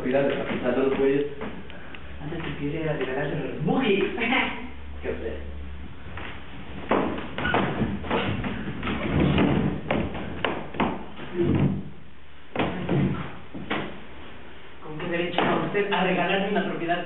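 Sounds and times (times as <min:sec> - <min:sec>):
thumps and knocks on stage: 0:06.8 - 0:11.9, 0:12.5 - 0:14.0.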